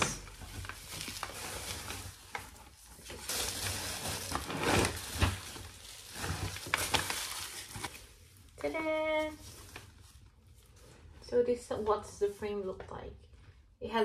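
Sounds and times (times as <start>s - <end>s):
bubble wrap rustling and crinkling: 0.0s - 11.9s.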